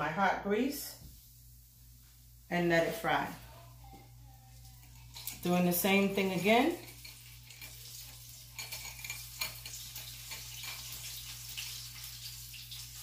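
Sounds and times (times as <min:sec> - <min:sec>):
vegetables frying in hot oil: 0:04.6 - 0:13.0.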